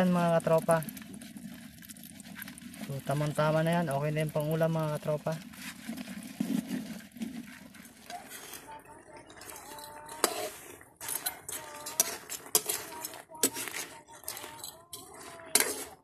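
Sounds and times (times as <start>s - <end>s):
metal spatula scraping a wok: 5.0s - 16.0s.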